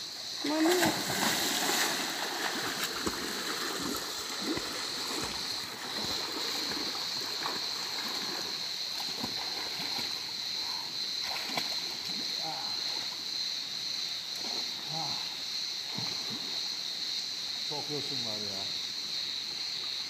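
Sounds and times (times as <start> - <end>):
high insect buzz: 0.0 - 20.0
person jumping into pool splash: 0.4 - 8.4
swimming strokes splashing: 0.4 - 10.4.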